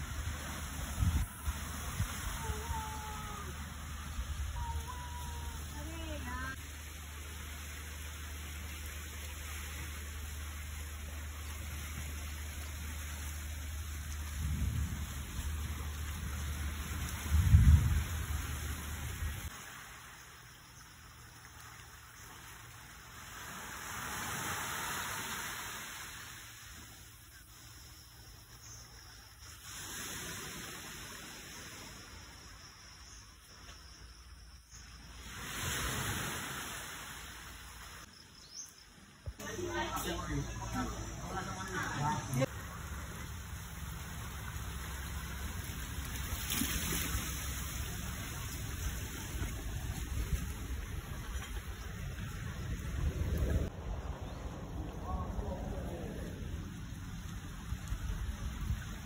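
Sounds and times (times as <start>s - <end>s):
wind rumbling on microphone: 0.0s - 6.6s, 13.8s - 19.5s, 40.4s - 59.0s
hiss of sea water: 0.0s - 20.8s, 21.7s - 28.0s, 29.2s - 32.5s, 35.0s - 38.1s
sea waves washing on rocks: 23.1s - 26.6s, 43.4s - 53.7s.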